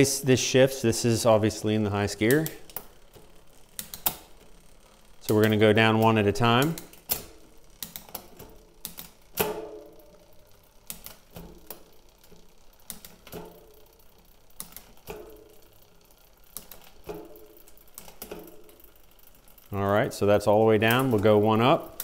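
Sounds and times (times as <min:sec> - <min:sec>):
bike chain running: 0:00.0 - 0:22.0.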